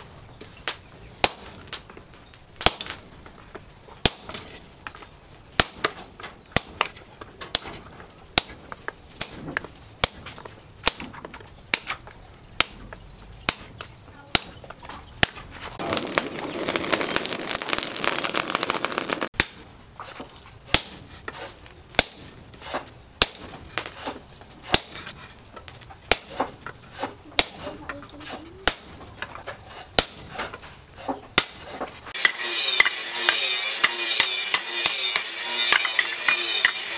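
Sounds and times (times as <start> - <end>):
dense rattling noise: 15.7 - 19.3
hammer striking metal on anvil: 32.2 - 36.9.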